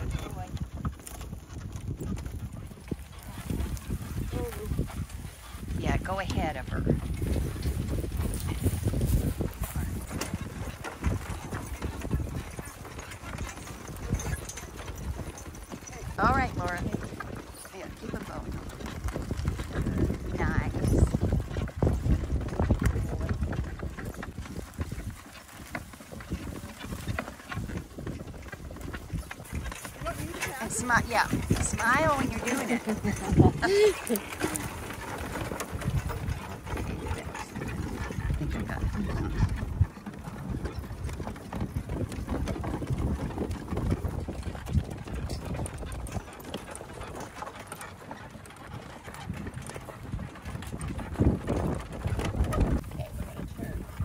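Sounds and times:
cart rolling rumble: 0.0s - 54.0s
horse hoofbeats: 0.0s - 54.0s.

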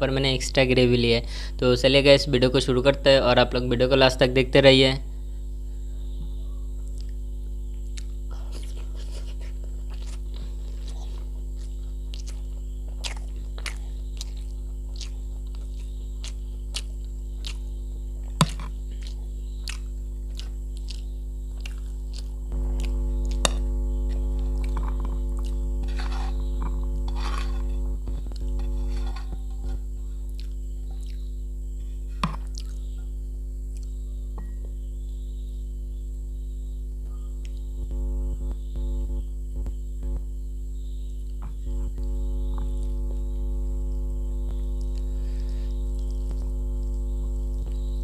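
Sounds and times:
electrical mains hum: 0.0s - 48.0s
rice scraped off steel plate: 25.8s - 27.9s, 28.6s - 29.8s.

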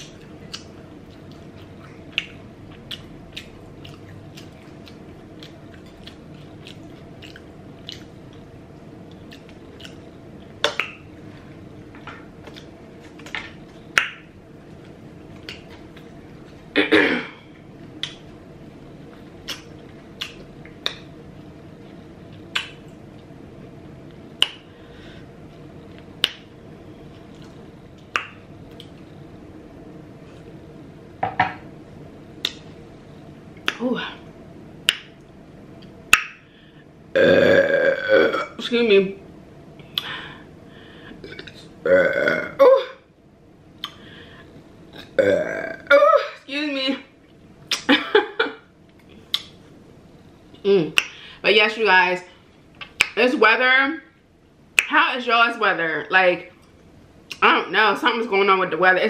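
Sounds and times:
wet mouth chewing sounds: 0.0s - 11.0s, 19.4s - 21.0s, 49.0s - 49.6s
faint steady hum: 0.0s - 59.0s.

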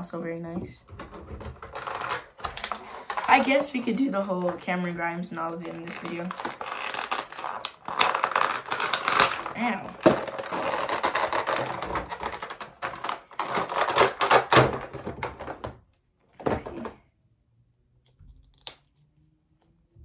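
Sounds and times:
plastic packaging rustling: 1.0s - 15.6s.

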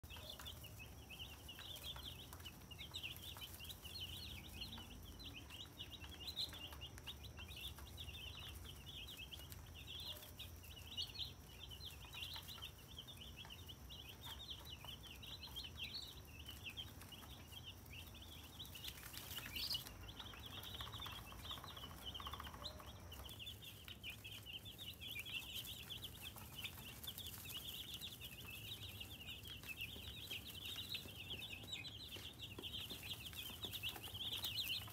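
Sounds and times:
baby chicks peeping: 0.0s - 34.9s.

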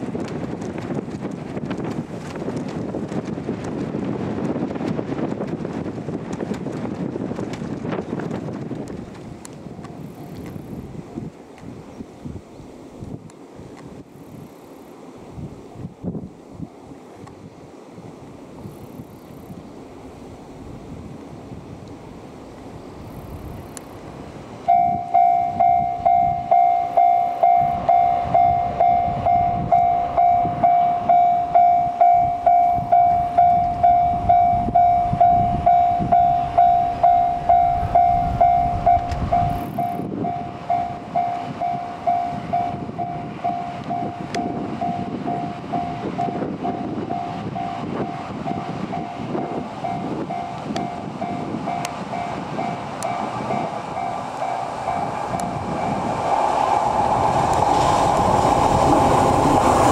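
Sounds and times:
diesel railcar rumbling past: 12.6s - 59.9s
level crossing bell ringing: 24.7s - 39.6s.

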